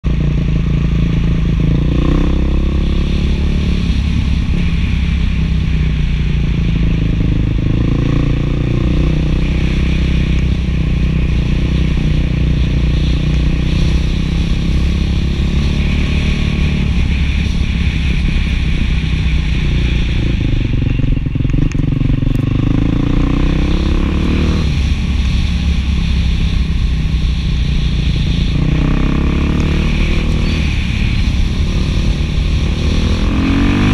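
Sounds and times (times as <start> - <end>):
motorcycle engine revving: 0.0 - 33.9.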